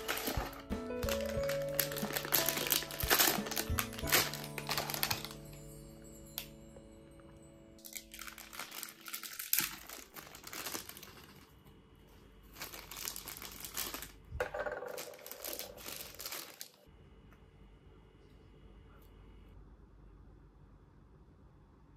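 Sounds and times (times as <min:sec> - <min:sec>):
plastic bag crinkling: 0:00.0 - 0:05.7, 0:07.8 - 0:11.6, 0:12.4 - 0:16.9.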